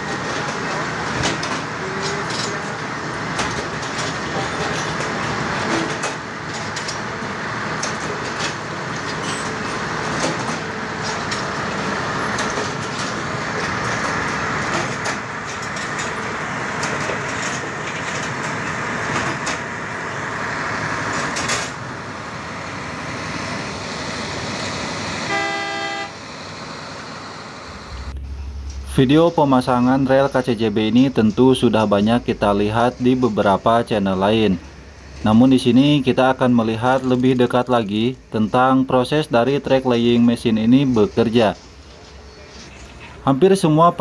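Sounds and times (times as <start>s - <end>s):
machinery din: 0.0s - 25.5s, 26.1s - 43.1s
short horn beep: 25.3s - 26.2s.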